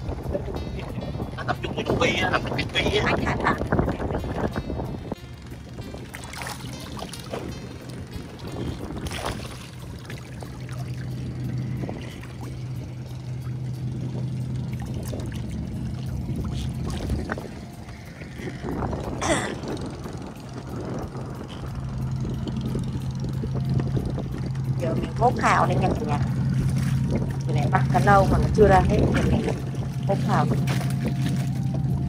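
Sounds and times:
engine humming: 0.0 - 32.0
water sloshing: 0.0 - 32.0
water splash: 5.8 - 21.7, 22.5 - 32.0.

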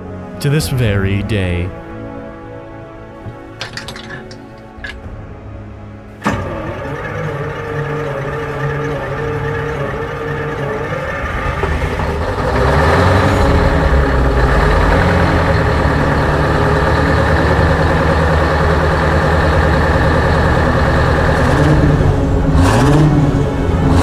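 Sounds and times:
diesel tractor engine running: 6.2 - 24.0.

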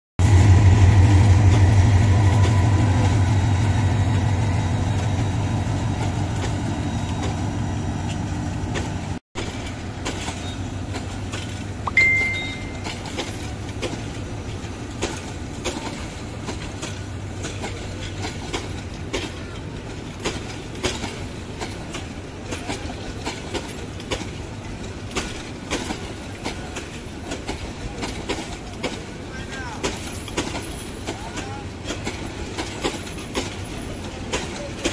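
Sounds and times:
diesel locomotive engine hum: 0.2 - 34.9
train wheels clickety-clack: 0.2 - 34.9
short high tone: 11.9 - 13.0.

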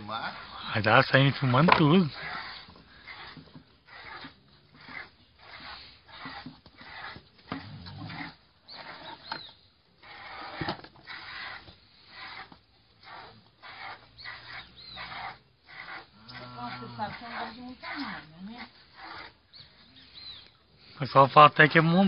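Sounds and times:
piglet sucking: 2.1 - 9.4.

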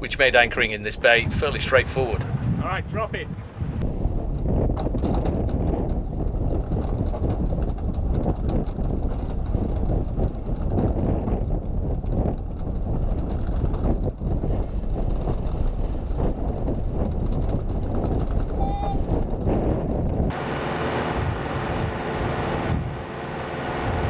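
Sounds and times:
strong wind buffeting microphone: 0.0 - 24.0.

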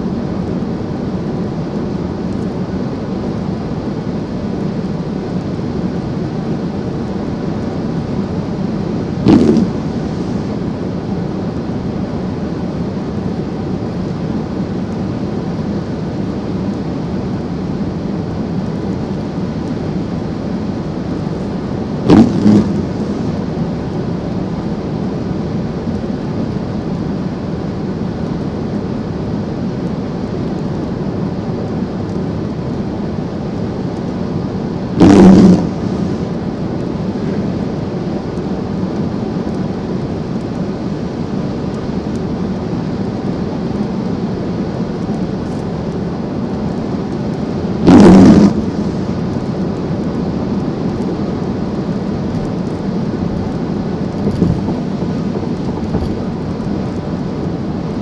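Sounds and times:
road and tyre noise: 0.0 - 58.0
loud thumps: 9.3 - 9.8, 22.1 - 22.9, 35.0 - 35.8.

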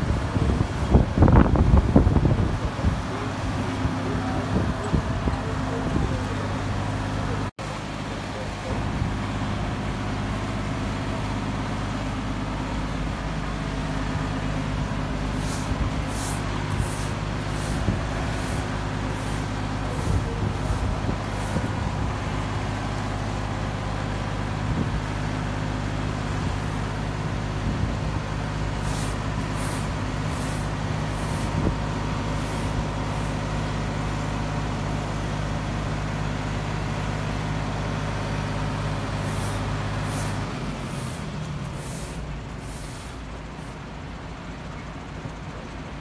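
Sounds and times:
diesel engine running: 0.0 - 46.0
short hissing: 15.3 - 21.7, 28.8 - 31.6, 32.3 - 33.4, 39.2 - 43.8.

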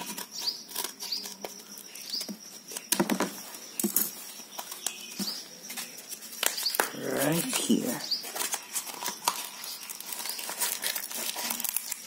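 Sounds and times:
faint bird chirps: 0.0 - 10.8
scissors snipping plastic mailer: 6.4 - 12.0.

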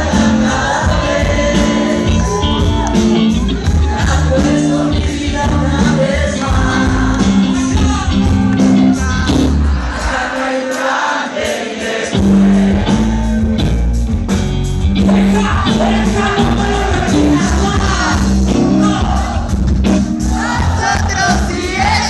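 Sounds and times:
electric guitar: 0.0 - 9.8
drums: 0.0 - 22.0.

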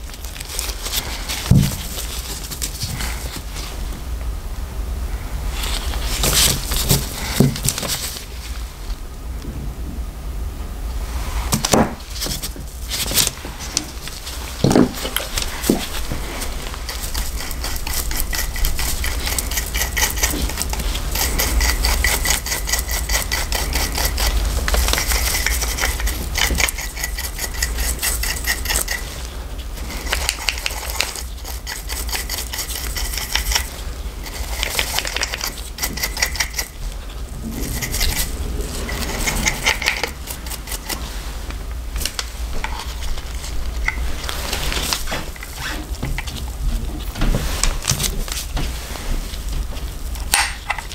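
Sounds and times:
brush scrubbing dirt: 12.1 - 50.2.

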